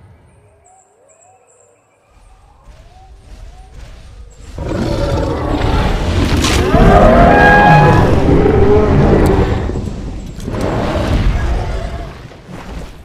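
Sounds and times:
dinosaur growl-roar: 4.6s - 12.2s.

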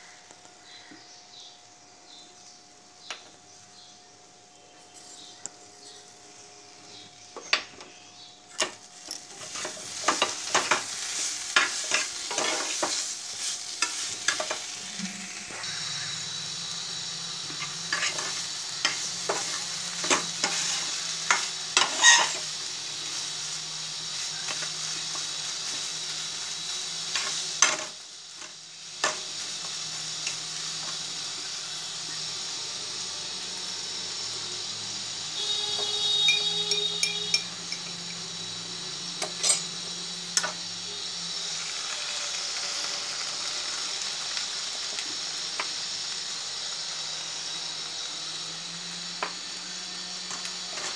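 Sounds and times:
food sizzling in a pot: 4.9s - 50.9s
metal spoon scraping a pot: 17.6s - 22.5s, 39.3s - 39.7s.

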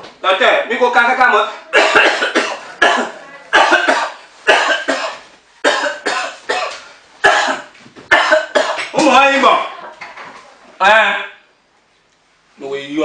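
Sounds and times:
man coughing: 1.7s - 9.0s.

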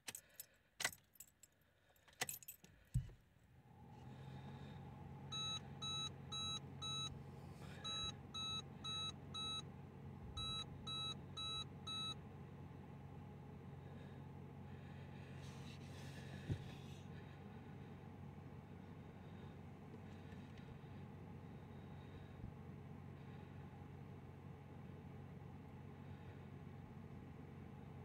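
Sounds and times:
keys jangling: 0.0s - 2.8s
steady low hum: 3.0s - 28.0s.

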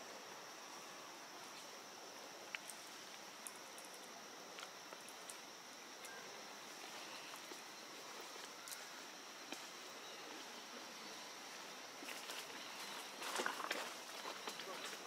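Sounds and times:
high insect drone: 0.0s - 15.0s
dry leaves crackling: 12.0s - 15.0s.

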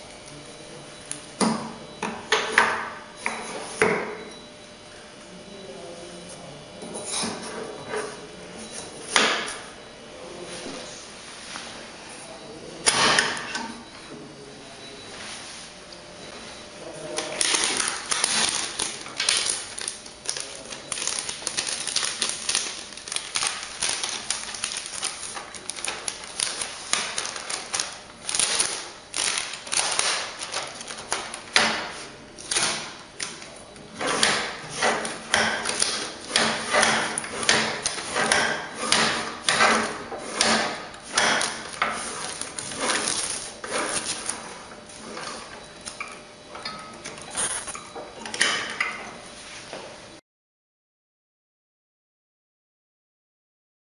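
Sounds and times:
rustling of wrapping and film: 17.0s - 46.0s, 47.1s - 47.8s.

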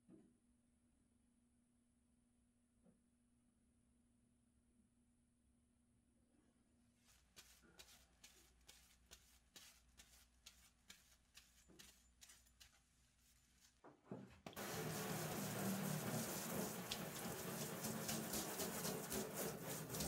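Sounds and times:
cloth wiping knife blade: 7.1s - 13.8s, 14.6s - 20.0s
shower sprayer spraying water: 14.6s - 20.0s.

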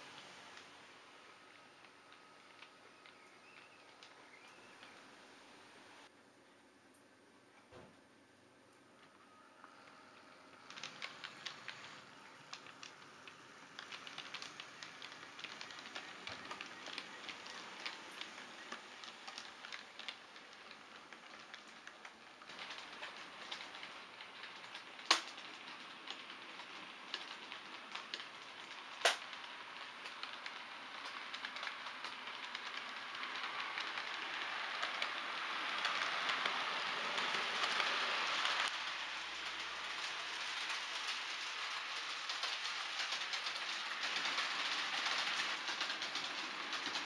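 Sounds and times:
model train wheels rattling: 9.6s - 47.0s.

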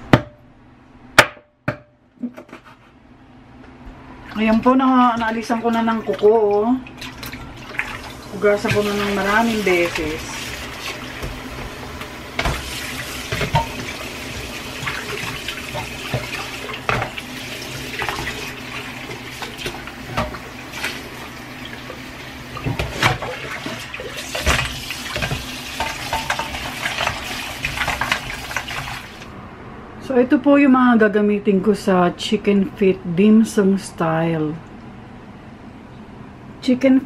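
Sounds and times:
water splashing: 4.2s - 11.7s, 12.4s - 29.3s
tap running into steel bowl: 13.3s - 17.2s, 24.4s - 29.0s
knocks and clatter of bowl: 25.2s - 27.2s.

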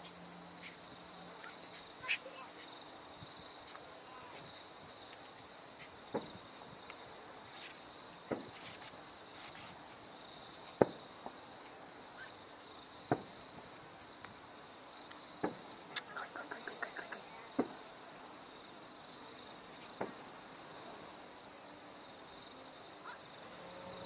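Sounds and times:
insects chirping: 0.0s - 24.0s
distant fireworks bangs: 8.3s - 8.8s, 13.1s - 13.6s.

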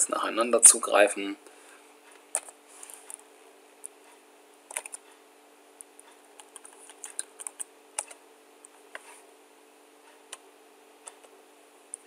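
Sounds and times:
faint steady hum: 0.0s - 12.0s
keyboard typing clicks: 4.7s - 5.0s, 6.4s - 8.2s.

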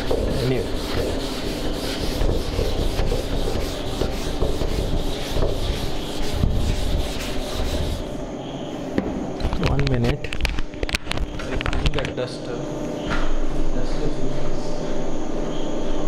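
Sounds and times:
duster rubbing on chalkboard: 0.0s - 8.2s.

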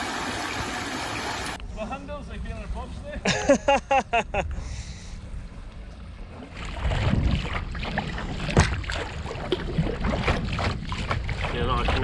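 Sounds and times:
wind rumbling on microphone: 5.2s - 12.0s
paddle splashes and drips: 6.3s - 12.0s.

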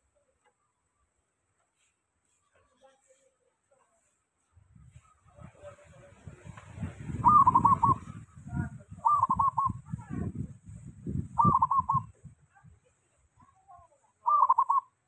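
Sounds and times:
dove cooing trills: 7.2s - 8.2s, 9.0s - 9.8s, 11.4s - 12.1s, 14.2s - 15.0s.

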